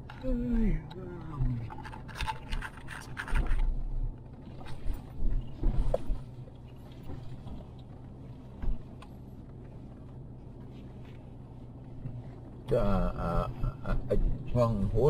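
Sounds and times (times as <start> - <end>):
vehicle engine running: 0.0 - 15.0
thumps and knocks from bumpy ride: 4.3 - 9.6, 14.0 - 14.6.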